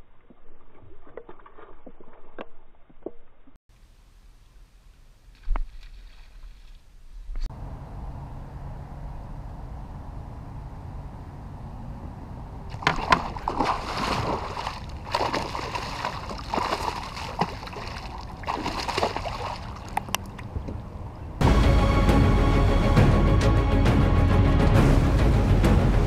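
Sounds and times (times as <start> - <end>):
fish splashing at water surface: 12.7 - 20.1
music: 21.4 - 26.0.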